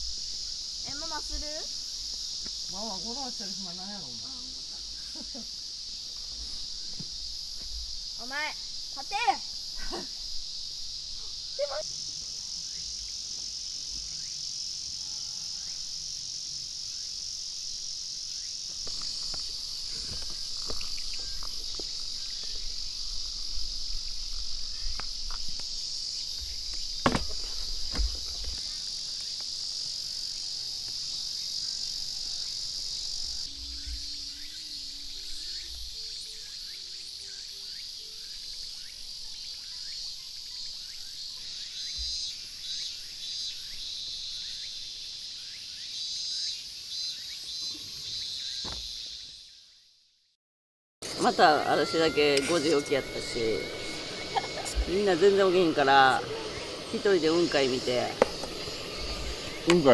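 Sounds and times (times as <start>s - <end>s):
insect chorus drone: 0.0s - 50.1s, 51.0s - 59.9s.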